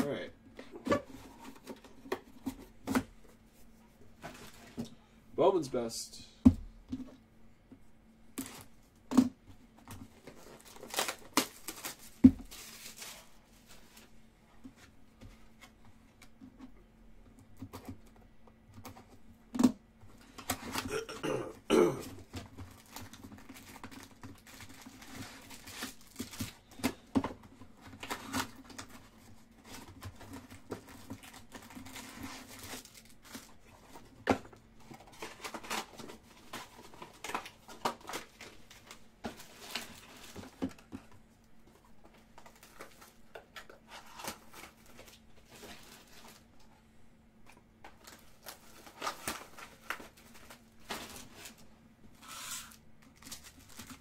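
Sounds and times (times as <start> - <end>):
faint steady hum: 0.0 - 54.0
pack wrappers crinkling: 10.3 - 13.4, 30.6 - 33.9, 47.8 - 51.6.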